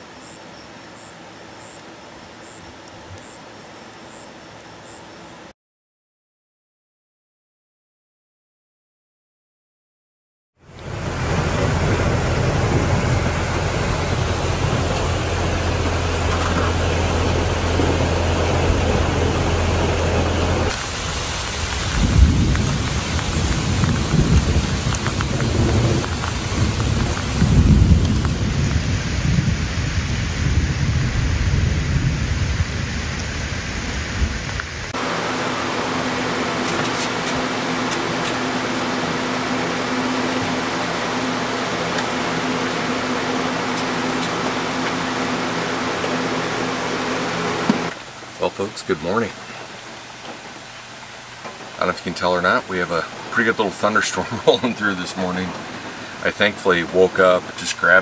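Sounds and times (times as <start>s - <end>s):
steady hum: 10.6s - 28.0s, 32.8s - 49.3s
heavy rain falling: 10.7s - 58.0s
deep rolling thunder: 10.9s - 34.9s.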